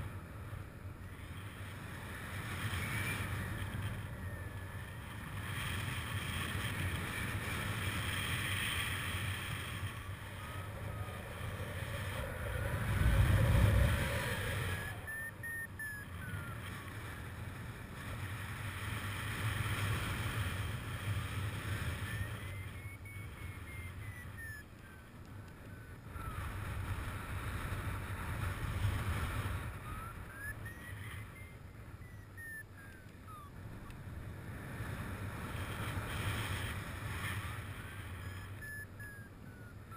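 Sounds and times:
faint beeping rising and falling: 0:00.0 - 0:39.9
wind buffeting microphone: 0:09.2 - 0:15.1.

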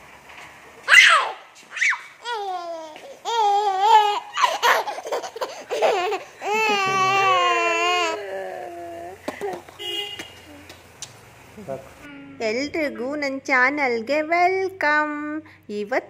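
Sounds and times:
toddler laughing and squealing: 0:00.9 - 0:09.4.

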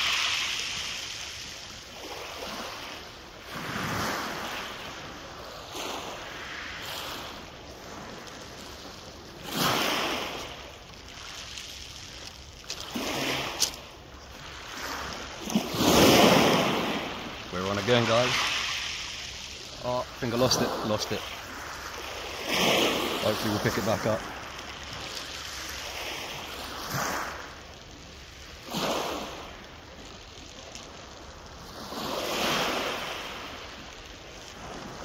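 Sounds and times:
sea waves washing ashore: 0:00.0 - 0:35.0.

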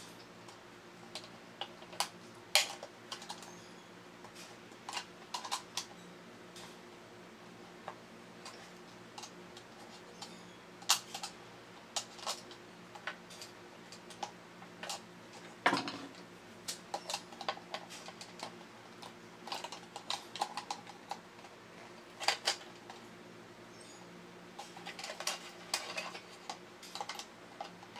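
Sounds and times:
toy robot parts clicking and knocking: 0:04.9 - 0:05.9, 0:16.9 - 0:21.2, 0:24.6 - 0:27.8.

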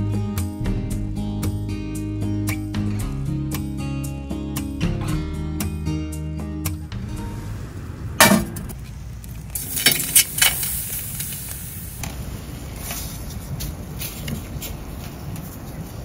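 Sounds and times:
low sizzle: 0:06.3 - 0:14.5
metallic knock: 0:08.2 - 0:08.8.

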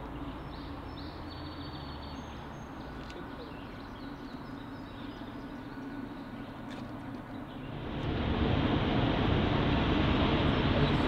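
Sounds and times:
songbirds chirping and whistling: 0:00.0 - 0:07.8
steady low rumble: 0:07.4 - 0:11.0.

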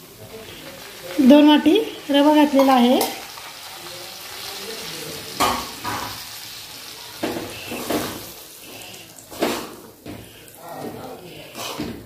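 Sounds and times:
semolina sizzling in ghee: 0:00.0 - 0:12.0
spatula scraping a pan: 0:07.2 - 0:12.0.

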